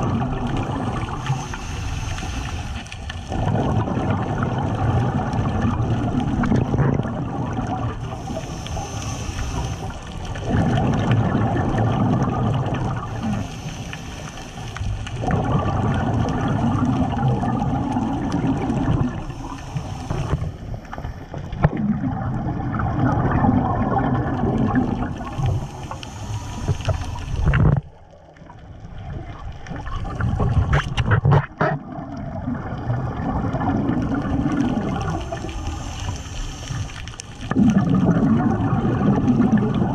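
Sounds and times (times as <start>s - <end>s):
gurgling exhaled bubbles: 0.0s - 39.9s
regulator hissing inhale: 1.1s - 3.2s, 8.0s - 10.3s, 13.1s - 15.1s, 19.1s - 21.3s, 25.2s - 27.5s, 35.2s - 37.4s.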